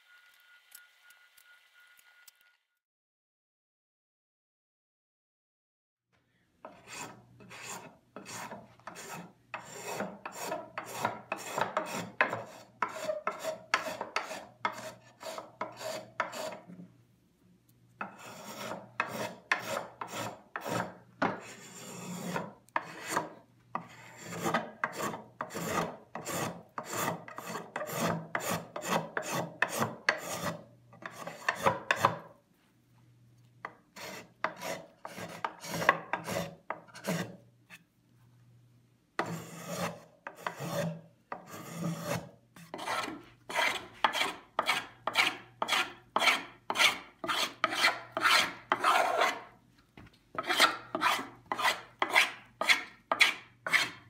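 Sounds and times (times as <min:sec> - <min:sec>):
hand plane shaving wood: 0:06.6 - 0:16.6, 0:18.0 - 0:32.2, 0:34.0 - 0:37.4, 0:39.2 - 0:49.5, 0:50.4 - 0:54.0.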